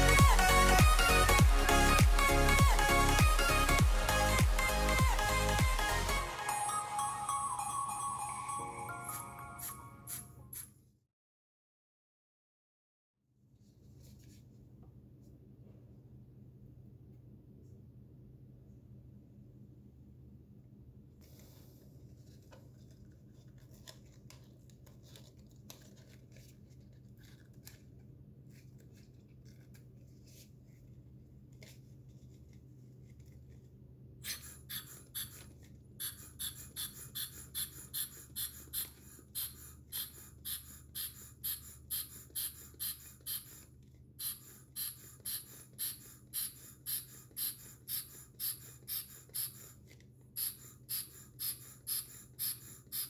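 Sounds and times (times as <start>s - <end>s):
bottle air pump hissing: 34.2s - 49.8s, 50.4s - 53.0s.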